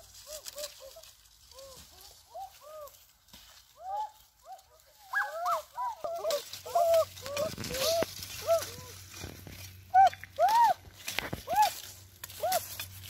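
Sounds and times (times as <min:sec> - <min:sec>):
animal calls: 0:03.8 - 0:09.0, 0:09.9 - 0:12.8.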